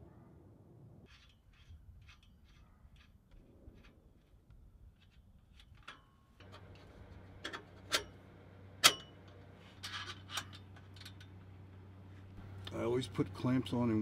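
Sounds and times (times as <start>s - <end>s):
low steady hum: 3.3s - 14.0s.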